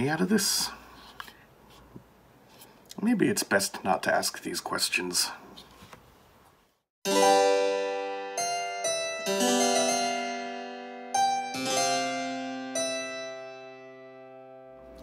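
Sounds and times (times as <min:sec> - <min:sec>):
keyboard playing slow chords: 0:07.1 - 0:15.0.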